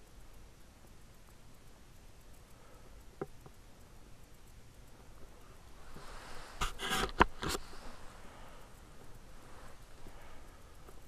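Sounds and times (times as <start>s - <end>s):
camera handling rustle: 5.9s - 8.1s.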